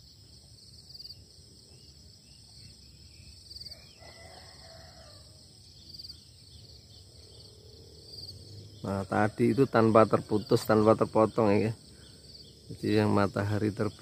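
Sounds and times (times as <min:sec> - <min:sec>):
insects trilling: 0:00.0 - 0:14.0
distant rooster crow: 0:03.6 - 0:05.6.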